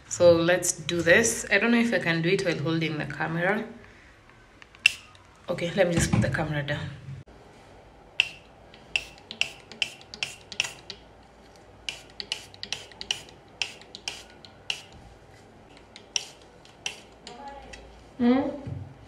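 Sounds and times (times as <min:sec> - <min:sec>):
spray bottle squirting: 0:04.8 - 0:05.2, 0:08.2 - 0:11.1, 0:11.8 - 0:15.0, 0:15.7 - 0:17.9.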